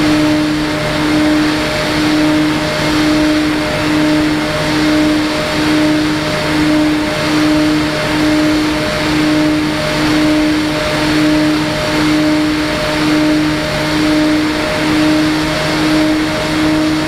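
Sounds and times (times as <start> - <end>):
pulsing buzzing tone: 0.0 - 17.0.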